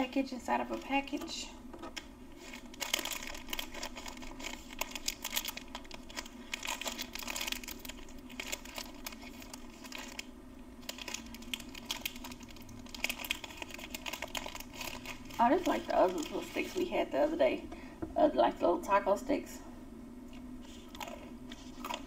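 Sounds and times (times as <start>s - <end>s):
plastic wrappers crinkling: 1.9s - 17.4s, 20.6s - 22.0s.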